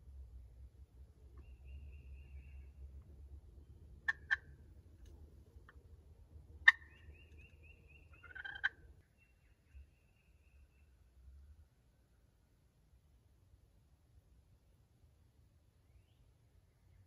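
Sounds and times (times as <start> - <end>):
turkey clucking: 4.0 - 4.5, 6.6 - 8.8.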